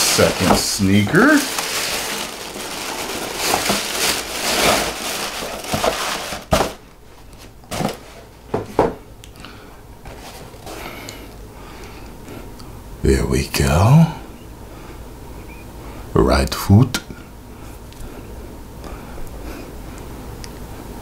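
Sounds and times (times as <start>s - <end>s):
tissue paper crinkling: 0.0s - 6.8s.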